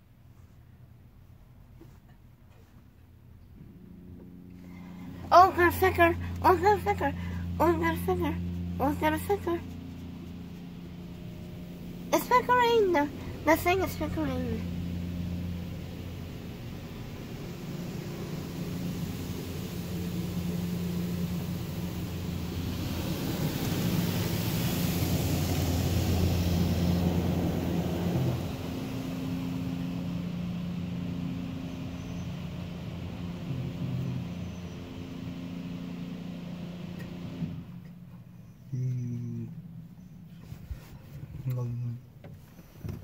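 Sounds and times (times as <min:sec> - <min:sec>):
low machinery hum: 0:00.0 - 0:43.0
water spraying over car: 0:04.7 - 0:38.5.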